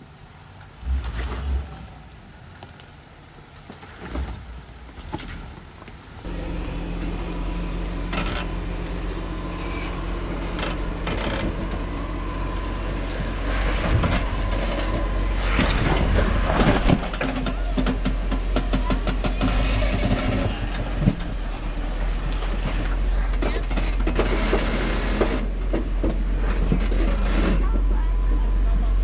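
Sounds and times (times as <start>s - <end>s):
vehicle engine running: 6.2s - 29.0s
knocks and clatter: 8.0s - 12.2s, 13.0s - 28.4s.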